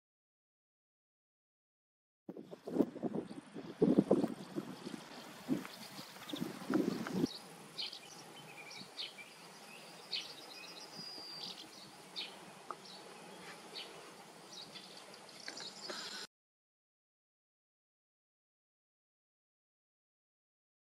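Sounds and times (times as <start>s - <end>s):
wind buffeting microphone: 2.3s - 7.4s.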